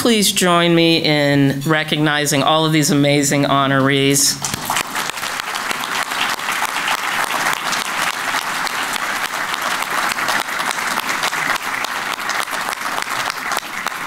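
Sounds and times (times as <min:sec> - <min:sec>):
audience applauding: 0:04.4 - 0:14.0.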